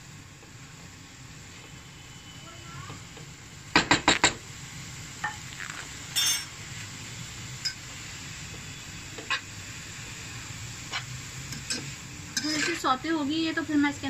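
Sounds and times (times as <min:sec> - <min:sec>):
food sizzling in frying pan: 0:00.0 - 0:14.0
spatula scraping pan: 0:12.4 - 0:12.9.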